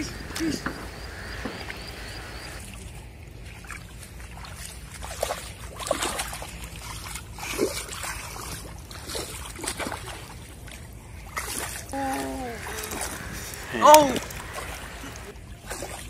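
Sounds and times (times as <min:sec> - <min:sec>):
small water splashes: 0:00.0 - 0:16.0
mud squelching: 0:03.7 - 0:16.0.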